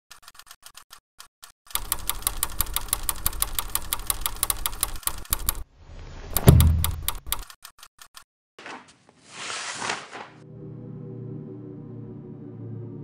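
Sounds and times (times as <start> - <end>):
rapid mechanical clicking: 0.1 - 5.7, 6.4 - 8.2.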